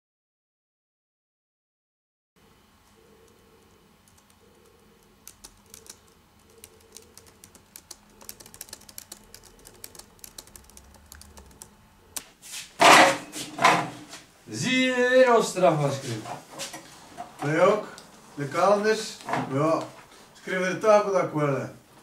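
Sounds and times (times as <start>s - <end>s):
laptop keyboard typing: 2.8s - 11.8s.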